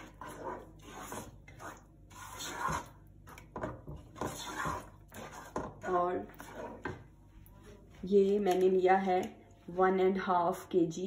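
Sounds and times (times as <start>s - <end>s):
spatula stirring in metal pot: 0.0s - 7.3s.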